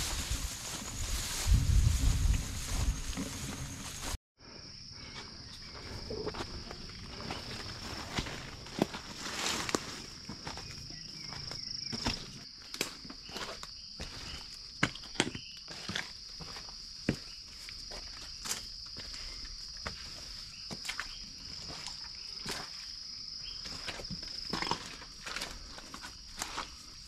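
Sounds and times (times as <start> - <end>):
footsteps on muddy trail: 0.0 - 4.2, 5.6 - 27.0
rustling through vegetation: 0.0 - 4.2, 5.6 - 14.6.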